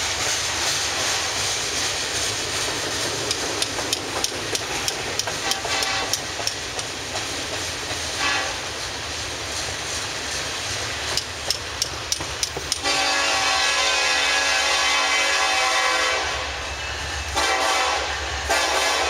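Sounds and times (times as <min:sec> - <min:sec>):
train wheels clicking over rail joints: 0:00.0 - 0:14.2
diesel locomotive horn: 0:05.4 - 0:06.4, 0:08.2 - 0:08.6, 0:12.7 - 0:19.0.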